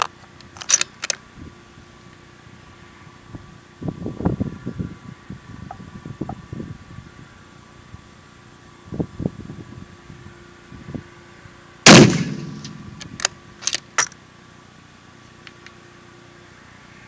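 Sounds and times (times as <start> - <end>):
rifle shot with ringing tail: 11.9 - 13.0.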